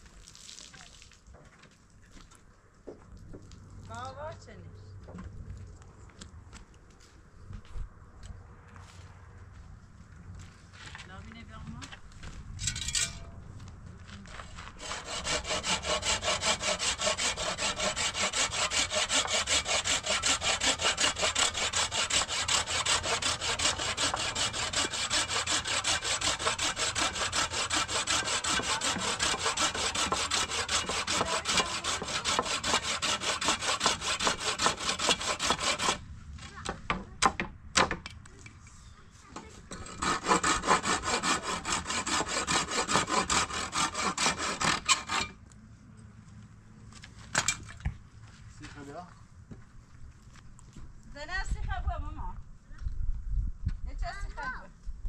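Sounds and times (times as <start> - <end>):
hand saw cutting wood: 14.4 - 36.0, 39.7 - 45.4.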